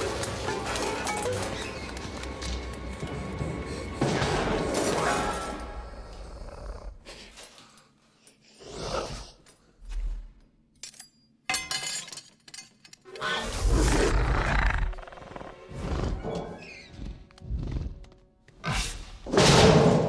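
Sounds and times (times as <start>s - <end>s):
tense orchestral music: 0.0s - 6.2s
animal snorts and roars: 5.8s - 7.4s, 8.6s - 9.4s, 13.2s - 19.2s.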